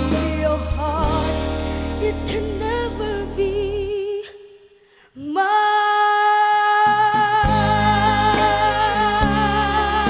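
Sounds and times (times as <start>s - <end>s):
bass and drums: 0.0s - 3.9s, 6.8s - 10.0s.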